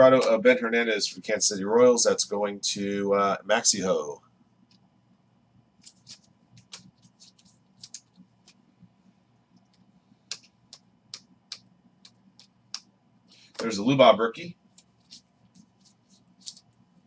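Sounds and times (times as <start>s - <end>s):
cards flicking: 5.8s - 8.6s.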